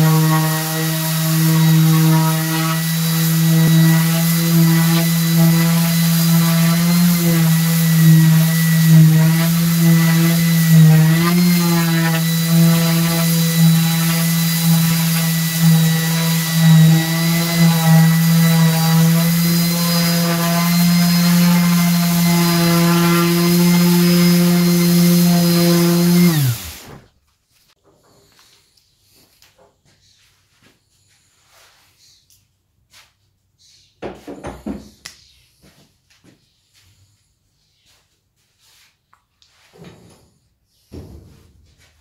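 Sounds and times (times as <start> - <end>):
orbital sander humming: 0.0 - 27.0
sander motor winding down: 0.0 - 27.1.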